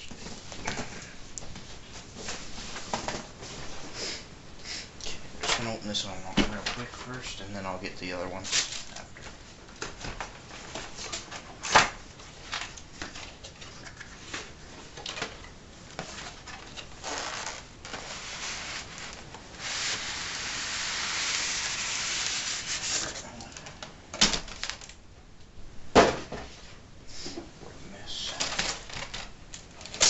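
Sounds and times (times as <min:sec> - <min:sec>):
cardboard rustles and knocks: 0:01.6 - 0:03.7
styrofoam scraping out of box: 0:17.0 - 0:23.2.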